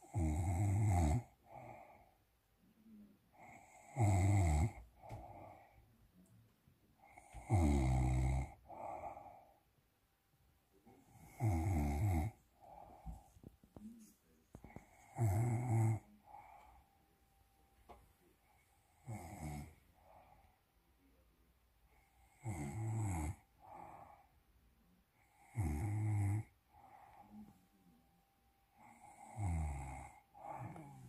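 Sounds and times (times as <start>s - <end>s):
man snoring loudly: 0.0s - 1.7s, 3.4s - 4.8s, 7.1s - 9.2s, 11.1s - 12.4s, 15.0s - 16.5s, 19.0s - 19.8s, 22.3s - 23.9s, 25.3s - 26.5s, 28.8s - 31.0s
soft breath out: 4.9s - 6.0s, 12.3s - 15.1s, 16.0s - 17.1s, 26.7s - 27.9s, 30.2s - 31.0s.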